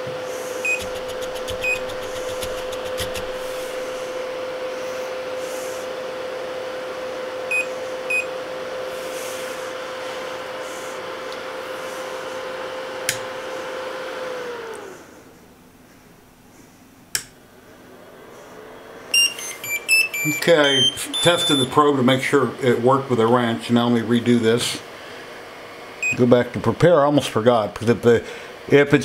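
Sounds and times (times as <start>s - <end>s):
stepper motors whining: 0.6s - 4.2s, 19.1s - 21.8s
short beeps: 19.1s - 21.7s.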